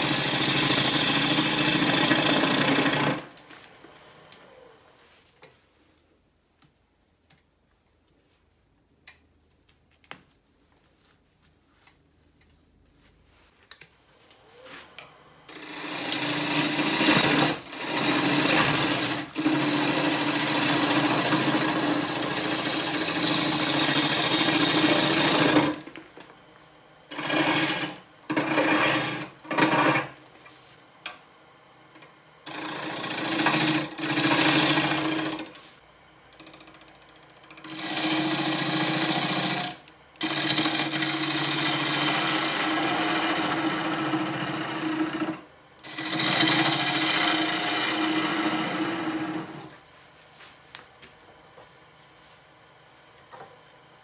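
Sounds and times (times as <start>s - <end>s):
lathe motor hum: 0.0s - 3.4s, 15.5s - 25.9s, 27.1s - 30.1s, 32.5s - 35.5s, 36.3s - 49.8s
gouge shaving wood: 15.5s - 25.8s, 27.1s - 30.1s, 32.5s - 35.5s, 37.6s - 45.3s, 45.9s - 49.7s.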